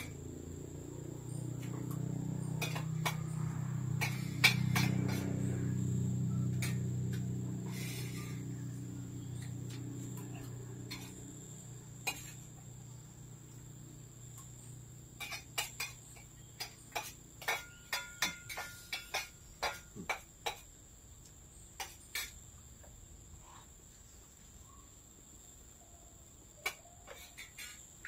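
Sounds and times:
high insect drone: 0.0s - 28.0s
spoons clinking on plates: 2.4s - 5.6s, 15.2s - 20.7s.

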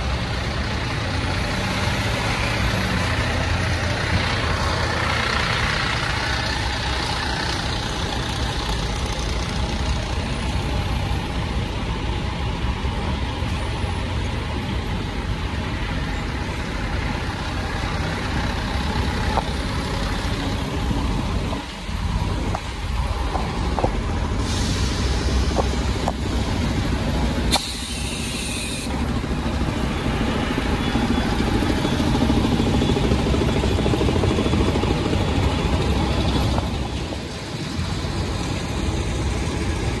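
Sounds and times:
diesel truck engines idling: 0.0s - 40.0s
air brake hiss: 24.3s - 25.6s, 27.5s - 28.9s.

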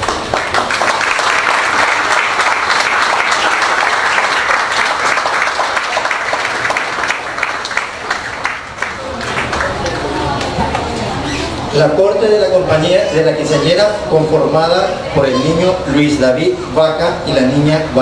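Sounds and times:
audience applauding: 0.0s - 10.9s.

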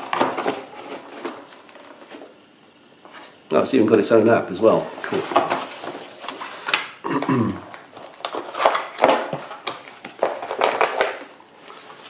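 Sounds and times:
cardboard and paper rustling: 0.0s - 2.4s, 4.8s - 6.9s, 7.9s - 12.0s.

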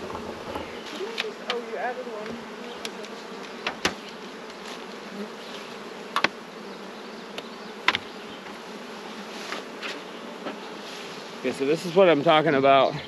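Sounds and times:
honey bees buzzing: 0.0s - 13.0s.

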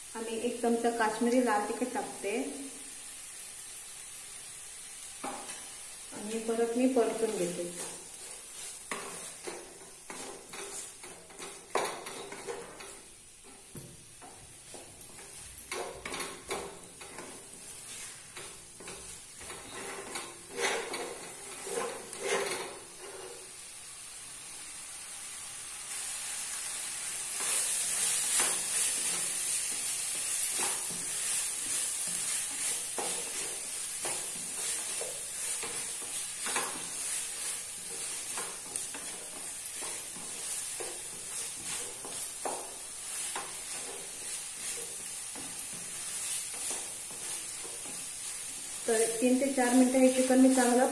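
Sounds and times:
frying sizzle: 0.0s - 50.9s
wooden spatula scraping pot: 6.3s - 23.5s, 27.4s - 50.9s.

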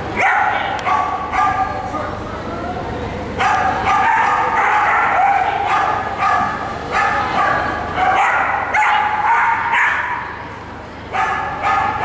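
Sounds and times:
dog barking: 0.2s - 1.8s, 3.4s - 10.3s, 11.1s - 12.0s.

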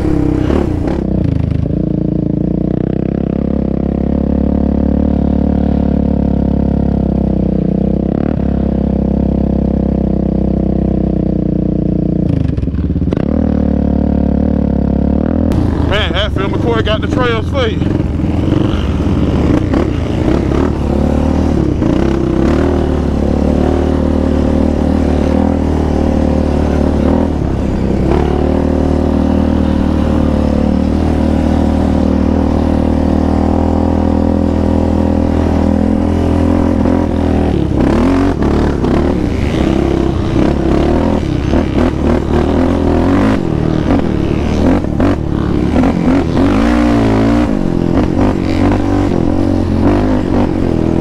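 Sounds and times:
quad engine revving: 0.0s - 11.1s, 12.2s - 51.0s
quad rattling over rough ground: 15.5s - 51.0s.

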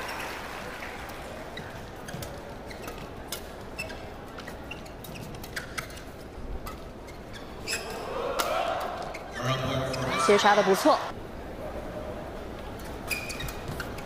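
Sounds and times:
faint arena background: 0.0s - 14.0s
shoes squeaking on court: 1.4s - 8.1s, 8.8s - 10.6s, 12.6s - 14.0s.

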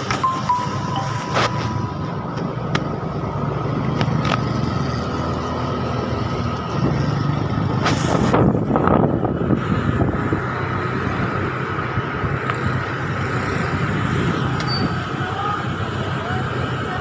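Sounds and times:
wind noise on microphone: 6.7s - 12.8s.

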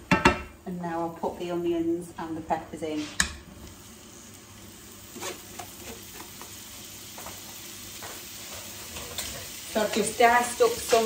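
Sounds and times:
vegetables sizzling in hot oil: 3.0s - 11.0s.

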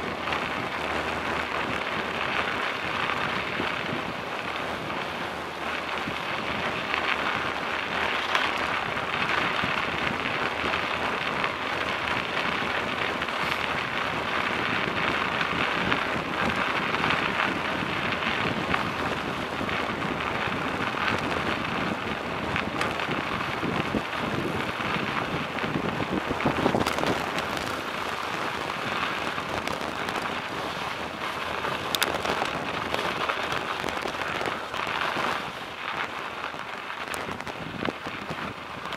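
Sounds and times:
bicycle tyres crunching on snow: 0.0s - 38.9s.

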